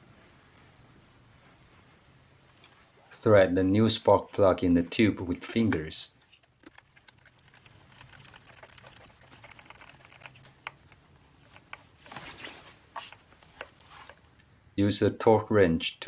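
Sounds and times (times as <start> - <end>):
rubbing rustle: 0.0 - 3.0, 5.4 - 14.2
small metal clicks and scrapes: 6.2 - 12.3.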